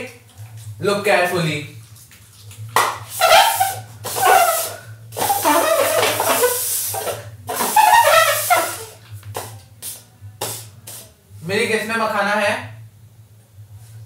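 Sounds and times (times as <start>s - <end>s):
paper cups scraping on tiles: 1.9s - 9.6s.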